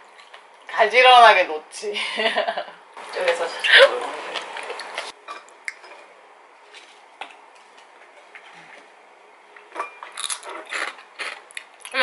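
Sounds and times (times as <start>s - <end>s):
crunchy snack being bitten: 10.2s - 11.7s.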